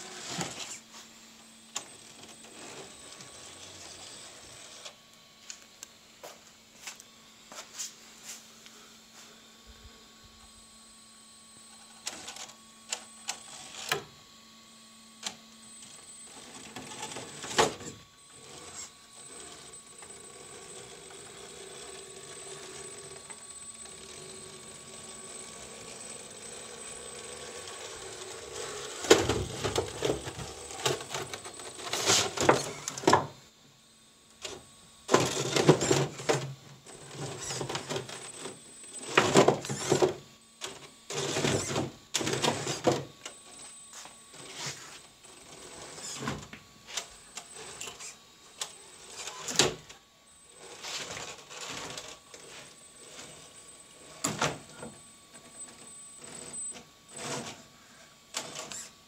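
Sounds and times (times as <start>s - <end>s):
electric motor whine: 0.0s - 59.0s.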